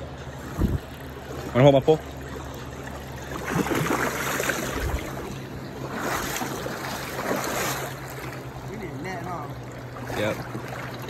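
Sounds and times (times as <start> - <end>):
fish splashing in water: 0.3 - 8.7.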